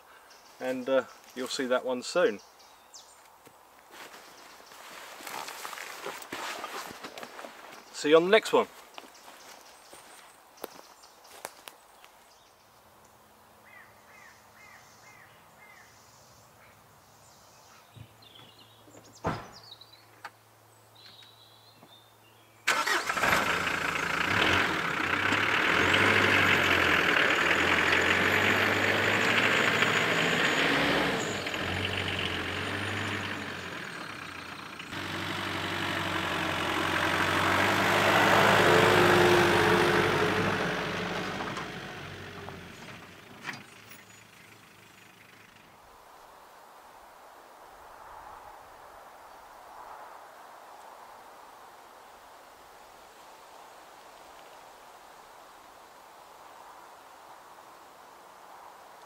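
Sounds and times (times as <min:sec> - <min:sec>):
faint birdsong: 0:00.0 - 0:23.1, 0:25.8 - 0:39.2, 0:41.2 - 0:46.5
pickup truck engine driving: 0:22.7 - 0:45.7.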